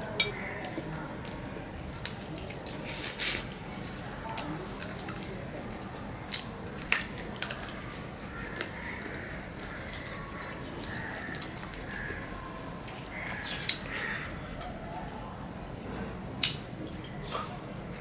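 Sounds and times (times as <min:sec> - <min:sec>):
wet eating sounds: 0:04.2 - 0:14.8.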